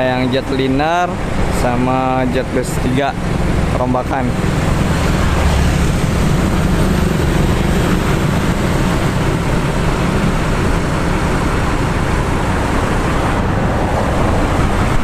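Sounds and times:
engine and road rumble: 0.0s - 15.0s
motor scooters driving past: 4.6s - 11.6s.

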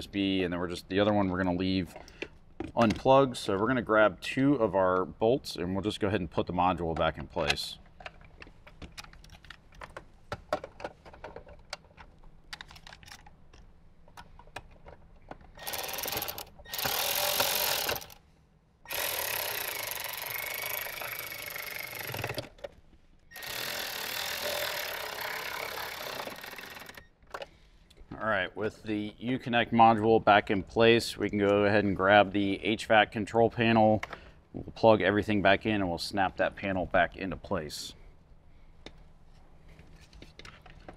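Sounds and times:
power driver running: 15.6s - 18.2s, 18.9s - 22.5s, 23.3s - 27.1s.

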